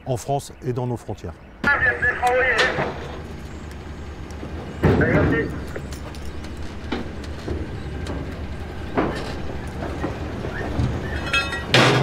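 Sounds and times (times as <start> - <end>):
machinery low hum: 0.0 - 12.0
metallic knocks and clanks: 4.6 - 12.0.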